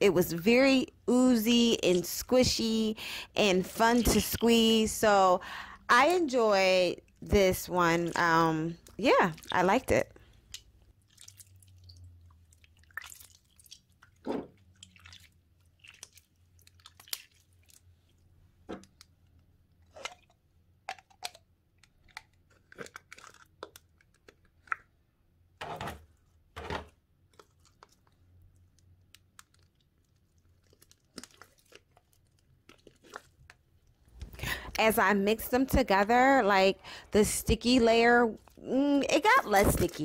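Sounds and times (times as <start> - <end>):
slime squelching: 1.7 - 25.1, 26.1 - 34.4.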